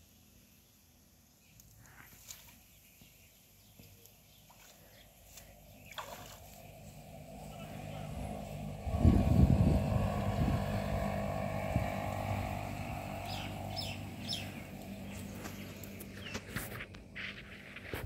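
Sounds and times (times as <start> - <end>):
engine humming: 3.7 - 18.0
wind buffeting microphone: 6.7 - 15.6.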